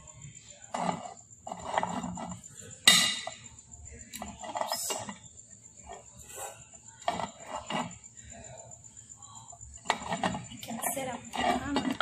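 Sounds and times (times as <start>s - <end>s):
metal pot clanking: 1.6s - 3.5s.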